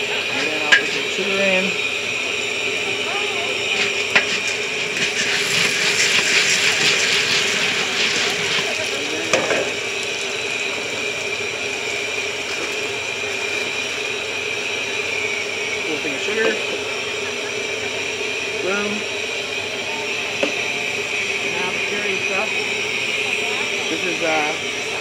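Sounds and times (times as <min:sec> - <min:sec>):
burner hum: 0:00.0 - 0:25.0
popcorn sizzling in hot oil: 0:00.0 - 0:25.0
wooden paddle scraping kettle: 0:03.7 - 0:09.8.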